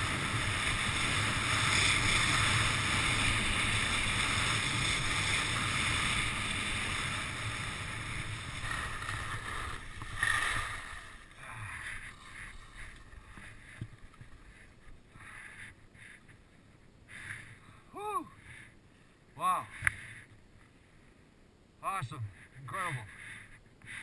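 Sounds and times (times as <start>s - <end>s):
skis scraping on snow: 0.0s - 16.3s.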